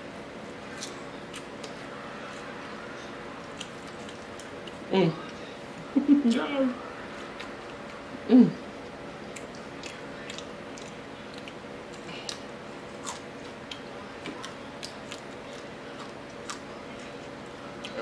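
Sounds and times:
fan humming: 0.0s - 18.0s
chewing crispy fried fish: 0.7s - 5.5s, 9.2s - 18.0s.

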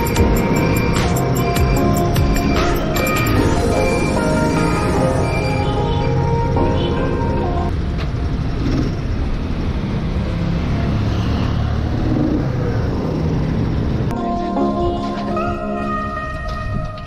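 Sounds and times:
road and wind noise: 0.0s - 17.0s.

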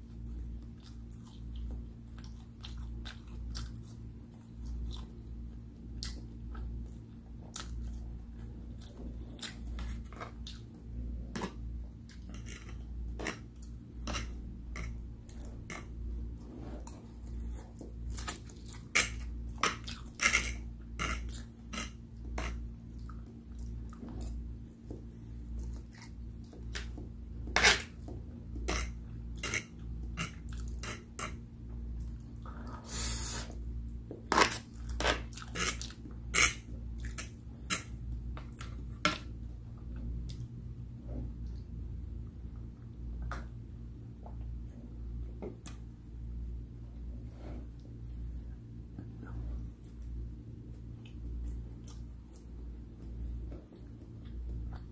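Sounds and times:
steady low hum: 0.0s - 54.9s
chewing noodles: 0.2s - 16.0s, 28.0s - 31.4s
fork scraping on plate: 34.3s - 36.6s.

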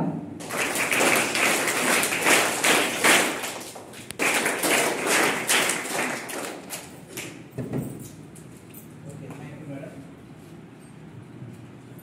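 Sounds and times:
children applauding: 0.4s - 7.4s.

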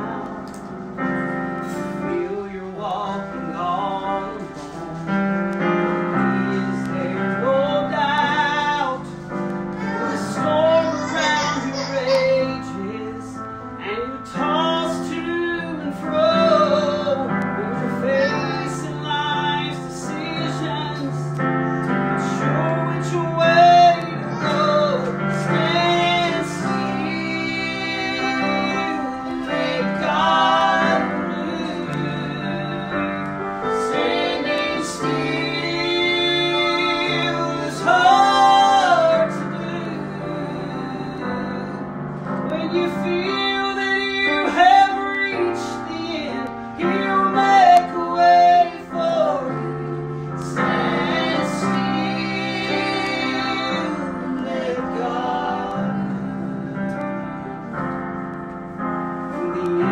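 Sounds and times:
digital piano: 0.0s - 59.9s
woman singing gospel song: 9.7s - 12.9s, 16.5s - 19.7s
girl singing: 9.8s - 13.0s, 17.8s - 19.6s, 23.4s - 25.6s.

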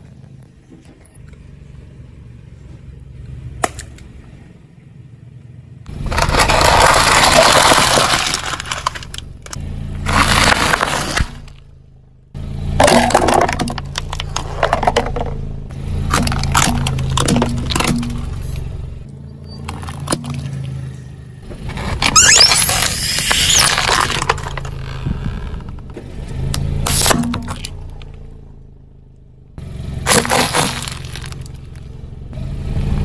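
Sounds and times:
car engine running: 0.0s - 33.0s
plastic crunching under tyre: 5.9s - 11.7s, 12.8s - 15.4s, 16.1s - 18.4s, 19.6s - 20.8s, 21.5s - 28.2s, 30.0s - 32.0s.

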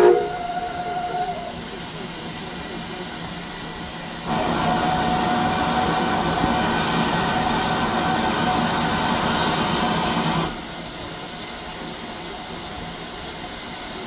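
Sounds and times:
steam locomotive whistle: 0.0s - 1.6s.

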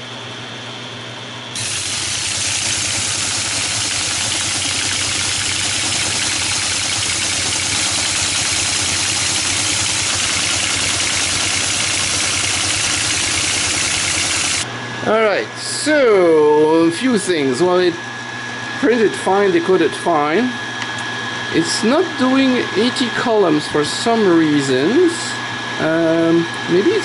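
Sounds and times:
machine hum: 1.4s - 22.8s.

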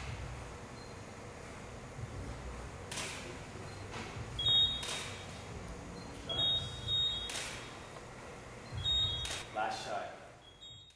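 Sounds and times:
camera shutter click: 2.9s - 3.3s, 4.7s - 5.2s, 7.2s - 7.7s, 9.2s - 9.5s
camera focus beep: 3.7s - 5.4s, 6.0s - 7.7s, 8.6s - 9.5s.

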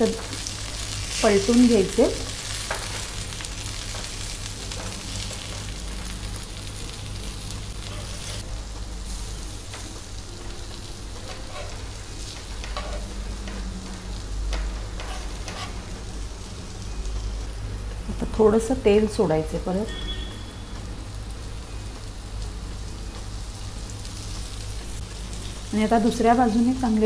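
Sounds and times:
food sizzling in oil: 0.0s - 27.0s
metal spatula scraping pan: 15.0s - 15.9s.

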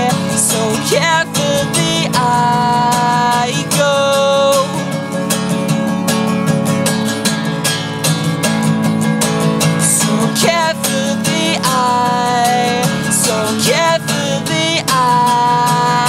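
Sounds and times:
person singing: 0.0s - 5.1s, 9.7s - 16.0s
acoustic guitar strumming: 0.0s - 16.0s.

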